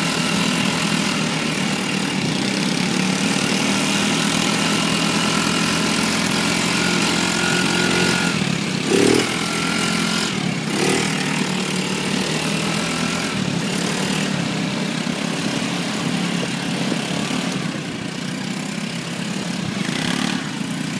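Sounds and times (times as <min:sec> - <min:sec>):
continuous noisy rush: 0:00.0 - 0:20.9
small engine running: 0:00.0 - 0:20.9.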